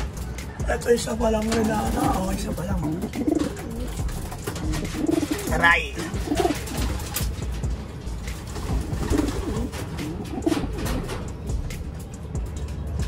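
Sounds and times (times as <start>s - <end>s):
pigeon cooing: 1.5s - 7.3s, 8.4s - 11.6s.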